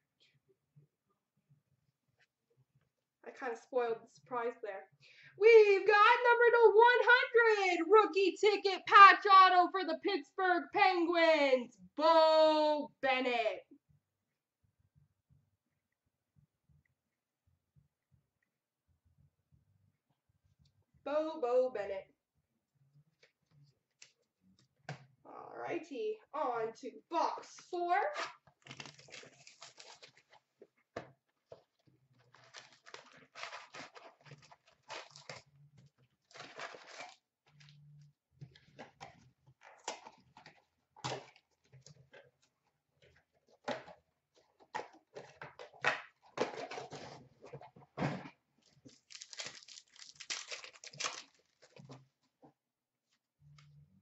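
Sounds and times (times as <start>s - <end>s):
plastic wrapping tearing and crinkling: 28.2s - 30.4s, 32.2s - 35.5s, 36.2s - 37.2s, 48.8s - 52.0s.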